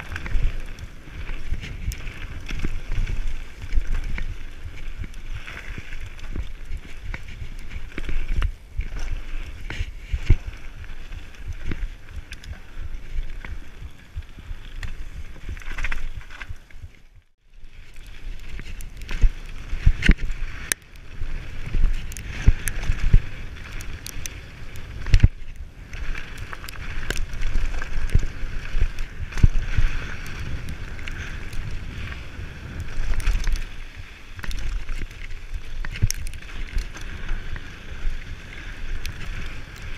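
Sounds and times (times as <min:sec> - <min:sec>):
bike tyres crunching over stones: 0:00.0 - 0:39.9
wind buffeting microphone: 0:18.2 - 0:39.9.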